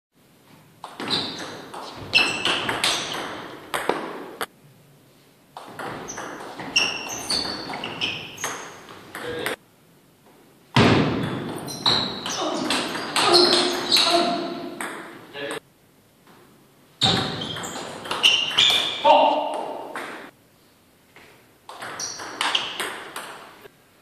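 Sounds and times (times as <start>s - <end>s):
table tennis ball pinging: 0.8s - 4.5s, 5.6s - 9.6s, 10.8s - 15.2s, 17.0s - 20.3s, 21.7s - 23.6s.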